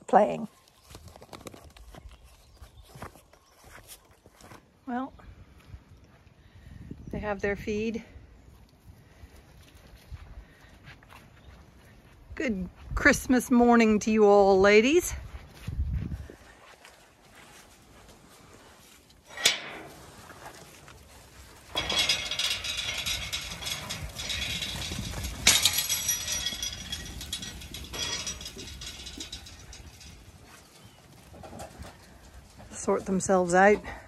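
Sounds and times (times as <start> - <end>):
hooves trampling: 0.0 - 4.9, 8.5 - 34.0
iron gate rattling and clanking: 19.2 - 34.0.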